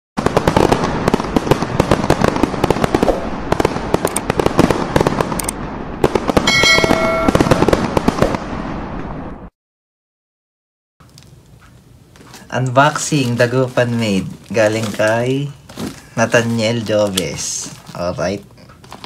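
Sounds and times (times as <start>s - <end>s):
fireworks banging and crackling: 0.2s - 9.2s, 12.5s - 18.4s
steady ringing tone: 6.5s - 7.6s.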